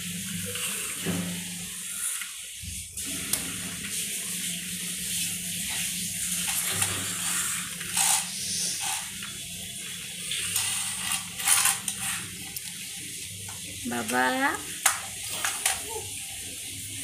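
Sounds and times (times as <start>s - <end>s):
toy car clattering on tiled floor: 6.4s - 9.1s, 10.4s - 12.8s, 14.8s - 16.0s.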